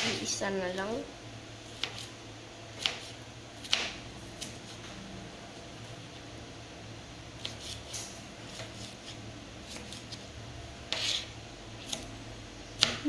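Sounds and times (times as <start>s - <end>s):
low hum: 0.0s - 7.5s
scraping on cutting board: 10.9s - 11.4s.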